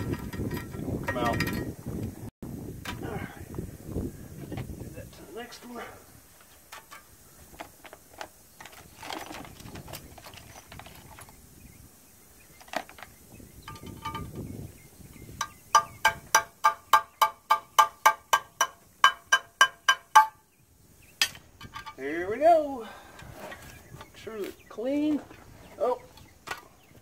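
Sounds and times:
hammer striking metal pin: 15.4s - 20.4s
light clinks of metal hardware: 21.2s - 22.0s.

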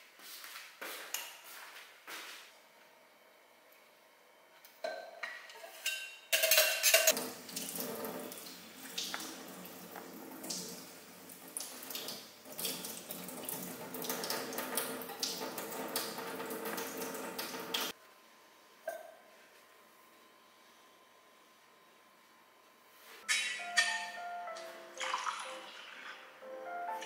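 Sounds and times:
dishes clicking: 4.8s - 7.2s, 23.2s - 26.2s
tap water running into sink: 7.1s - 17.9s, 25.0s - 26.2s.

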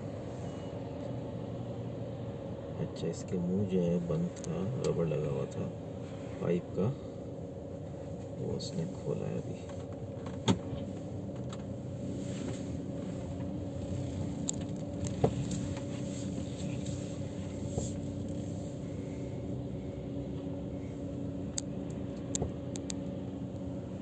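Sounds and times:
truck engine humming: 0.0s - 24.0s
sharp clicks: 21.5s - 23.0s.

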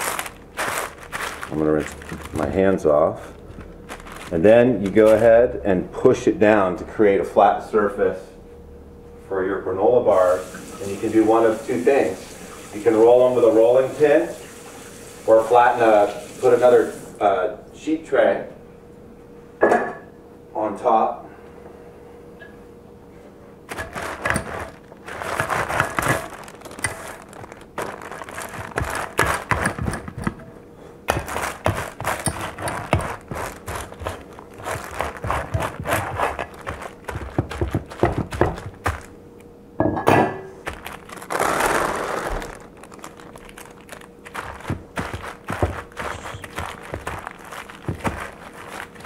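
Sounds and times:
paper crinkling and rustling: 0.0s - 5.3s, 23.7s - 30.3s, 31.1s - 39.1s, 40.6s - 49.0s.

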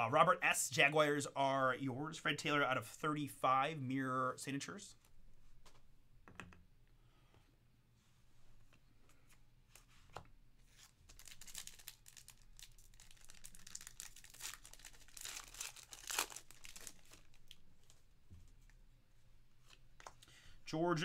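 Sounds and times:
foil wrapper crinkling and tearing: 11.1s - 18.0s
cards being handled: 19.6s - 20.3s.

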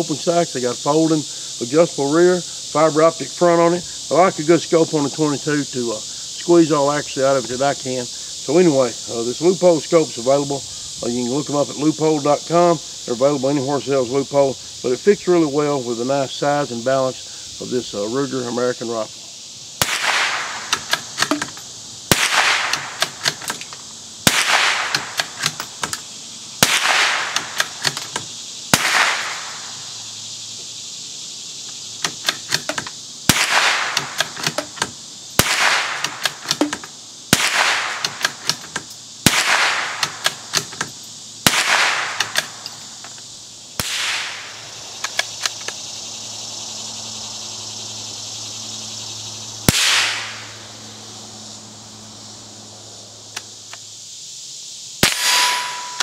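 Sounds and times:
rifle shots with echo: 19.8s - 20.7s, 22.1s - 23.0s, 24.3s - 25.2s, 26.6s - 27.6s, 28.7s - 29.6s, 33.3s - 34.2s, 35.4s - 36.2s, 37.3s - 38.1s, 39.3s - 40.2s, 41.5s - 42.4s, 43.8s - 44.5s, 49.7s - 50.4s, 55.0s - 56.0s.

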